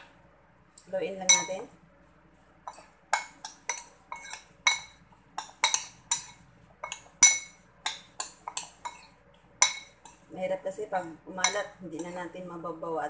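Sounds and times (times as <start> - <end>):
metal spoon clinking in ceramic bowl: 1.3 - 1.6, 2.7 - 10.3, 11.4 - 12.2.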